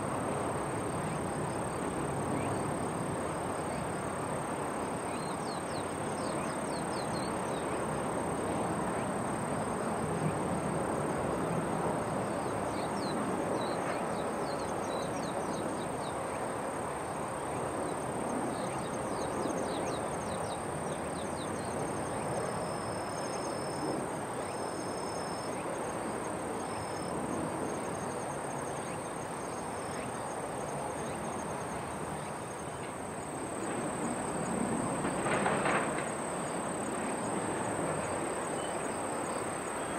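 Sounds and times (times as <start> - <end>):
steady rushing background noise: 30.0 - 39.9.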